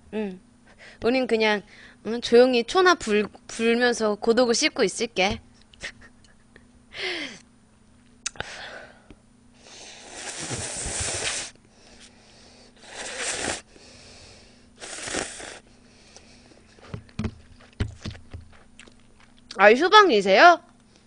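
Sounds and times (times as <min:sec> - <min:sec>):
person slurping noodles: 0:09.7 - 0:11.5, 0:12.8 - 0:13.7, 0:14.8 - 0:15.7.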